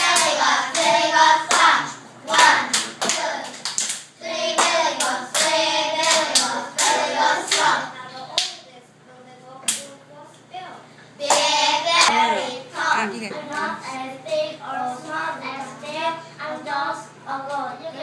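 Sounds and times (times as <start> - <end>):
hands clapping: 2.3 - 7.7.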